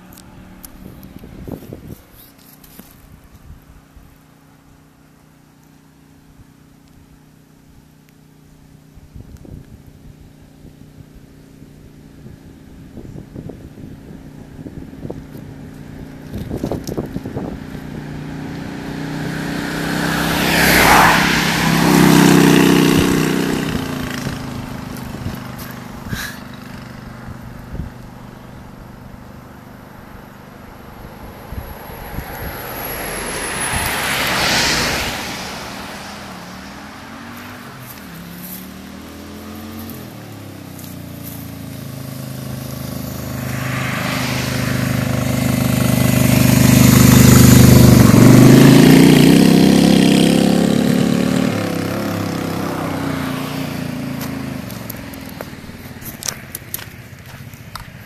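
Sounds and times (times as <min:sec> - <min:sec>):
motorcycle engine approaching: 0:00.0 - 0:58.0
vehicles passing at speed: 0:00.0 - 0:58.0.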